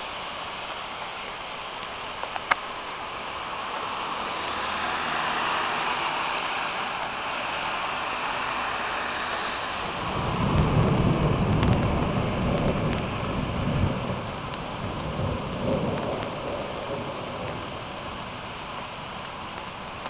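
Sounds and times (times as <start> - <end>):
rain falling: 0.0 - 20.0
thunder rumbling: 9.7 - 18.5.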